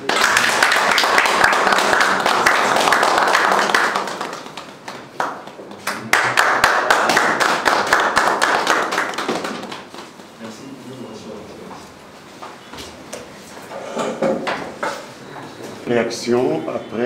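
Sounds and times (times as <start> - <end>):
crowd applauding: 0.0 - 10.2.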